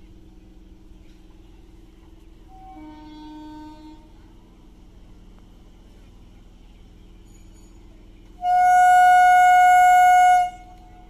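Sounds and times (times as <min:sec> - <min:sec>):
faint low train rumble: 0:00.0 - 0:11.0
train horn blast: 0:02.5 - 0:04.2, 0:08.4 - 0:11.0.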